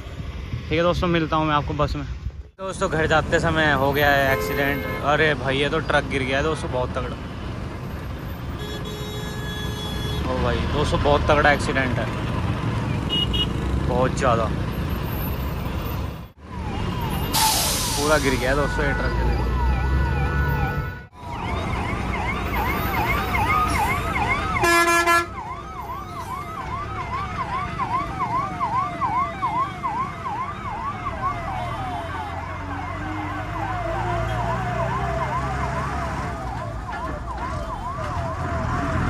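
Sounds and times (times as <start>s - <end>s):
low traffic rumble: 0.0s - 39.0s
vehicle horn blast: 4.2s - 5.1s, 8.6s - 10.3s, 24.6s - 25.3s
siren on fast yelp: 16.5s - 39.0s.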